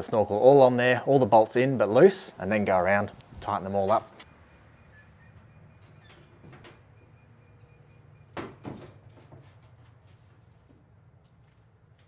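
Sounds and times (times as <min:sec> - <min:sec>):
plastic knocking and scraping on metal: 0:05.8 - 0:06.9, 0:08.4 - 0:10.0.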